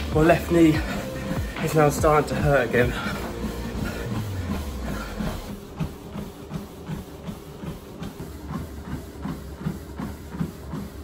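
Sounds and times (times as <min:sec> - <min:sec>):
treadmill motor hum: 0:00.0 - 0:11.0
footfalls on treadmill belt: 0:04.6 - 0:11.0.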